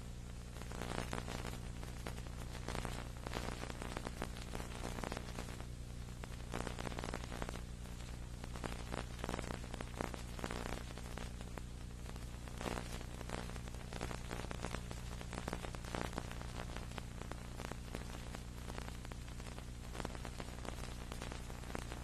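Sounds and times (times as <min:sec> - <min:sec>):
crackling static hiss: 0:00.0 - 0:22.0
electrical hum: 0:00.0 - 0:22.0.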